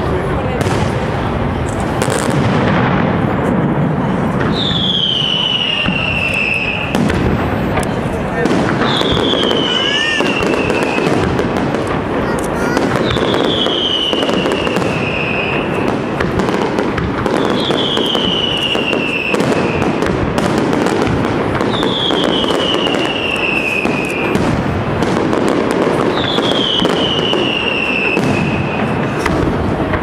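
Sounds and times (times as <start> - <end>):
fireworks crackling and popping: 0.0 - 30.0
high whistle falling in pitch: 4.6 - 6.9.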